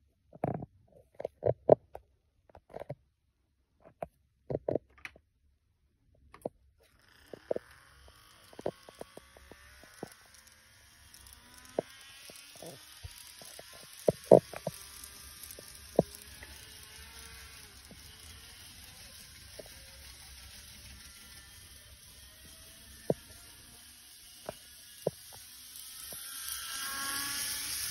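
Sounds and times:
sharp clicks and knocks: 0.4 - 3.0, 3.8 - 5.2, 11.6 - 16.5
model train humming on track: 6.9 - 27.9.

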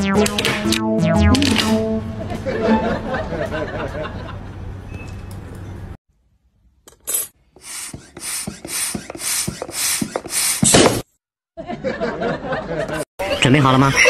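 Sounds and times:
tool scraping cardboard: 7.6 - 11.0.

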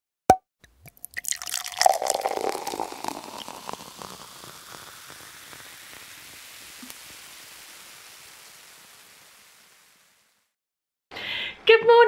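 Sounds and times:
faint steady hiss: 1.4 - 10.6
crackling rustling whoosh: 3.7 - 10.6.

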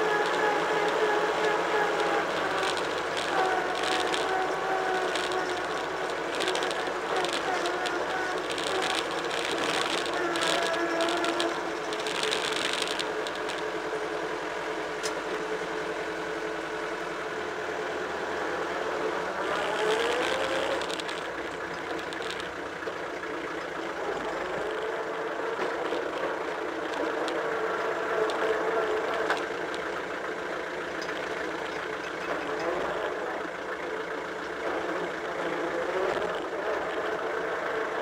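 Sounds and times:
tractor engine running: 0.0 - 38.0.

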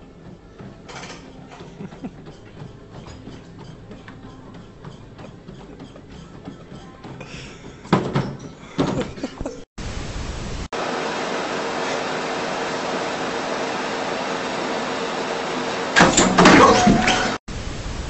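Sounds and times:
treadmill motor and belt whirring: 0.0 - 8.9, 10.8 - 17.4
knocks and clatter: 0.6 - 9.5.

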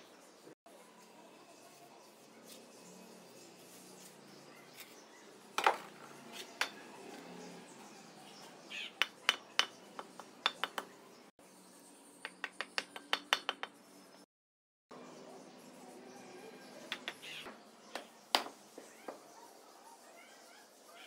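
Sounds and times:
hammer tapping brick: 9.0 - 10.9, 12.3 - 13.8.

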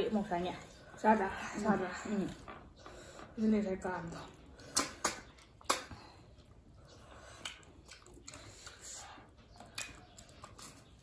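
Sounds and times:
mouth smacks and clicks: 4.3 - 11.0.

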